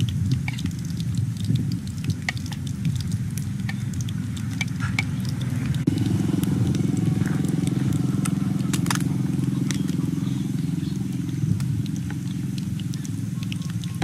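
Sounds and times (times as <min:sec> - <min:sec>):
fire crackling and popping: 0:00.0 - 0:14.0
fish frying in hot oil: 0:00.0 - 0:14.0
low mechanical drone: 0:00.0 - 0:14.0.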